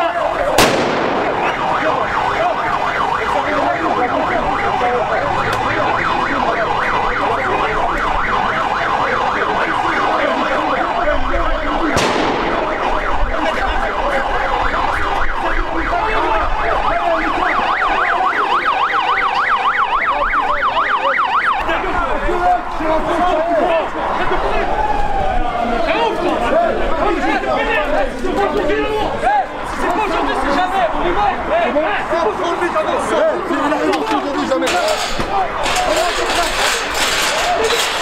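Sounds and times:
electronic sirens yelping: 0.0s - 28.0s, 28.7s - 38.0s
sharp bang: 0.6s - 1.8s, 12.0s - 12.9s.

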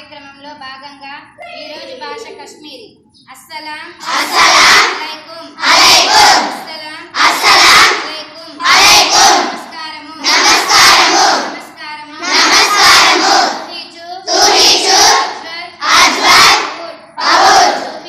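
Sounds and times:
person calling phrases: 1.2s - 3.0s
girls chanting in unison: 4.0s - 18.0s.

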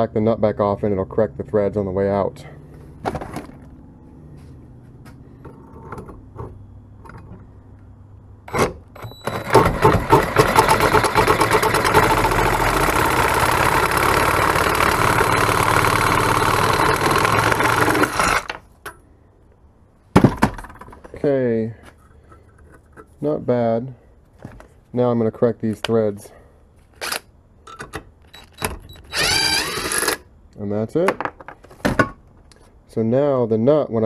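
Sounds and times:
reciprocating saw cutting steel: 10.2s - 18.6s.

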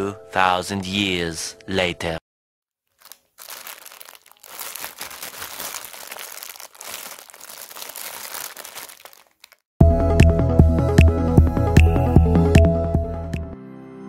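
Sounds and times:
plastic bags crinkling: 2.9s - 9.6s.

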